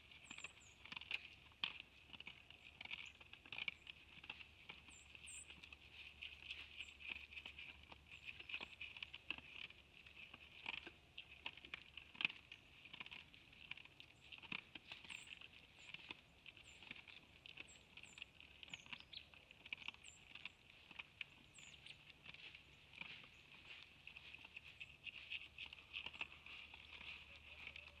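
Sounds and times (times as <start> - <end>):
bird chirps: 0.0 - 1.3, 4.8 - 7.2, 14.2 - 28.0
deer feeding crunches: 0.0 - 28.0.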